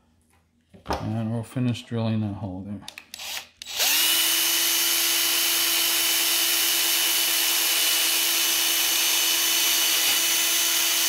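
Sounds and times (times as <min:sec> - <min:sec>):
power drill whining: 0:03.1 - 0:11.0.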